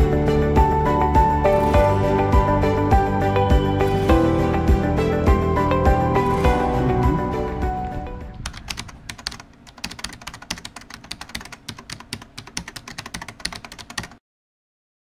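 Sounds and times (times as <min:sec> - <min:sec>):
background music: 0:00.0 - 0:09.4
keyboard key clicks: 0:08.4 - 0:14.2.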